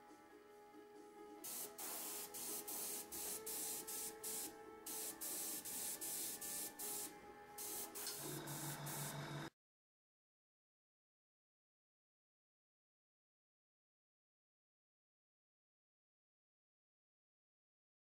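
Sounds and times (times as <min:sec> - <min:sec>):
airbrush spraying in bursts: 0:01.4 - 0:09.1.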